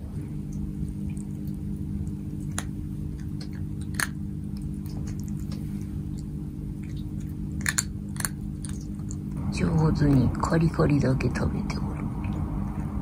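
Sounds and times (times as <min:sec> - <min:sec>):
steady low hum: 0:00.0 - 0:13.0
cat chewing dry kibble: 0:00.5 - 0:09.4.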